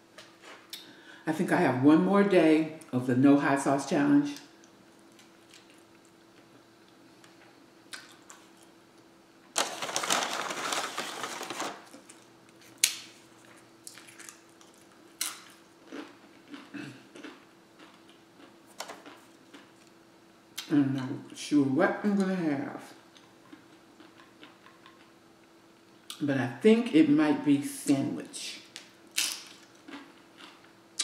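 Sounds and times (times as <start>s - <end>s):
low room hum: 0.0s - 31.0s
soft chewing: 4.6s - 8.8s, 13.4s - 20.0s, 23.1s - 26.2s, 29.6s - 31.0s
paper bag rustling: 9.5s - 12.2s.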